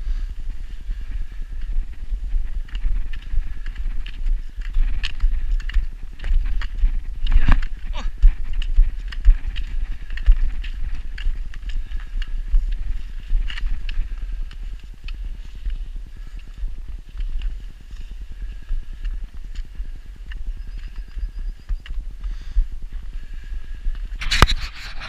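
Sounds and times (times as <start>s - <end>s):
footsteps crunching on snow: 0.0s - 25.0s
low microphone rumble: 0.0s - 25.0s.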